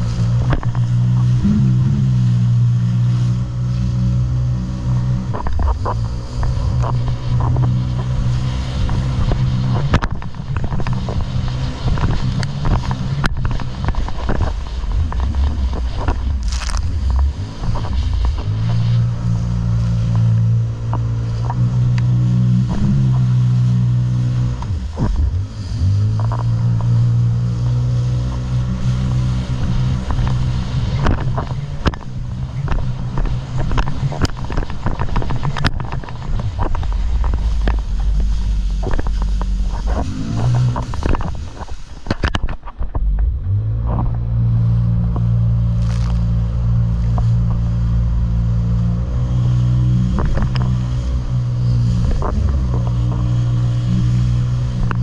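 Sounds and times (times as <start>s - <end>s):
hull slapping on waves: 0.0s - 55.0s
jet ski engine running: 0.0s - 55.0s
water spray: 5.8s - 32.2s.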